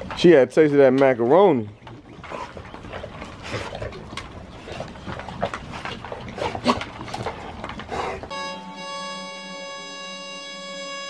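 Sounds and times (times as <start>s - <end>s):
dogs crunching dry kibble: 1.8s - 8.3s.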